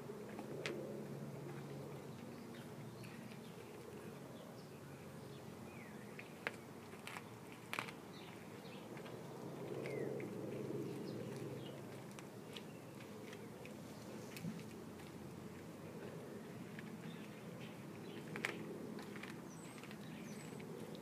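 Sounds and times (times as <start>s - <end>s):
dog gnawing a bone: 6.2s - 13.8s, 14.4s - 21.0s.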